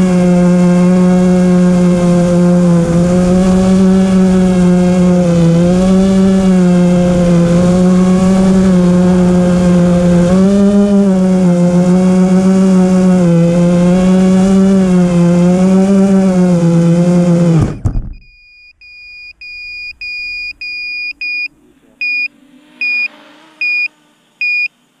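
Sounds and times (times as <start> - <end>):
quadcopter motors whining: 0.0 - 18.1, 18.8 - 24.5
electronic high beeps: 17.7 - 24.7.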